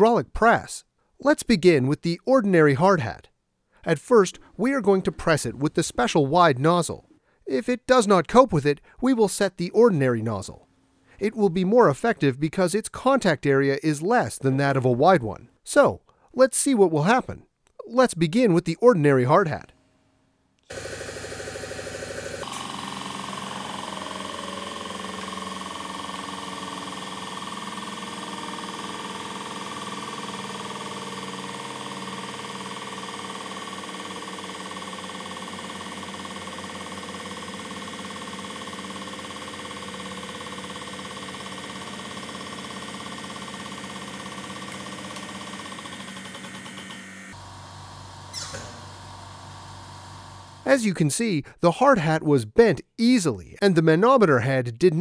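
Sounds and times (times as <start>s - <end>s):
hydraulic pump motor humming: 20.6s - 50.7s.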